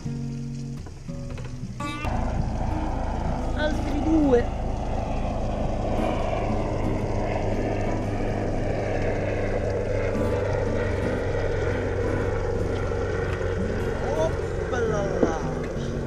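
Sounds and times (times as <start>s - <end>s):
outboard motor idling: 0.0s - 16.0s.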